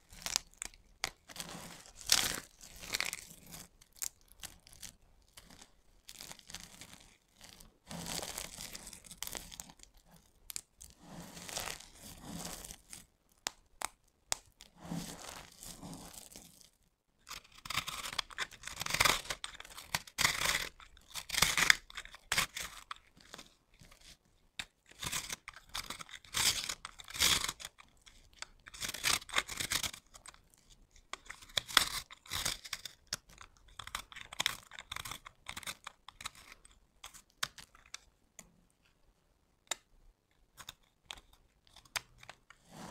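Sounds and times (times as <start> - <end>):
soap crunching crushed by hand: 0.0 - 9.9, 17.3 - 24.0, 24.6 - 30.4, 31.1 - 38.1
knife shaving soap: 0.0 - 38.6, 39.6 - 42.9.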